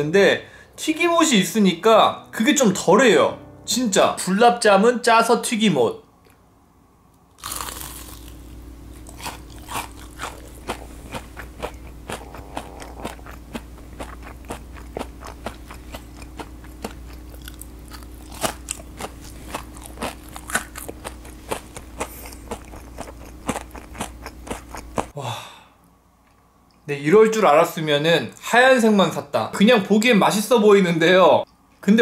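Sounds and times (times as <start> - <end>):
faint low hum: 0.0 - 32.0
crunching and chewing fried food: 7.3 - 25.2.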